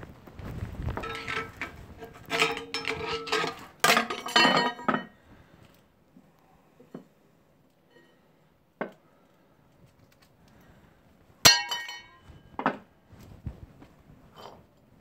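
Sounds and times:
sharp metallic clink: 11.5 - 12.2.

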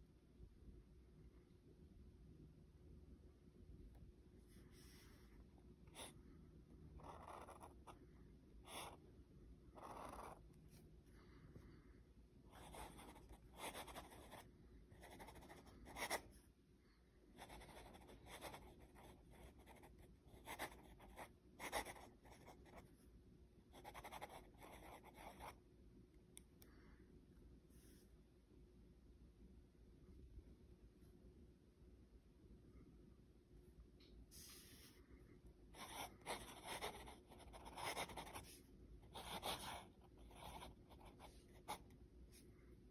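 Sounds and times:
pen nib scratching on paper: 9.8 - 10.4, 35.8 - 41.9.

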